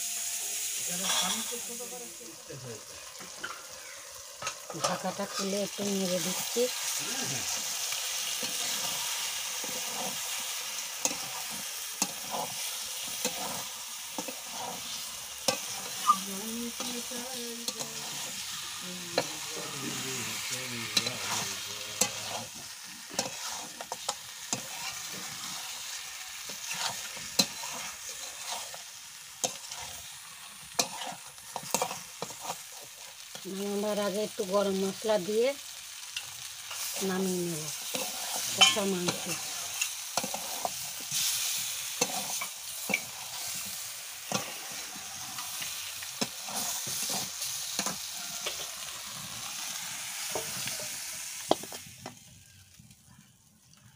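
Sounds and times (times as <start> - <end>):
meat and potatoes sizzling in oil: 0.0 - 53.9
spatula scraping metal pan: 0.9 - 1.6, 8.3 - 18.6, 20.2 - 30.1, 30.7 - 32.9, 37.8 - 48.8.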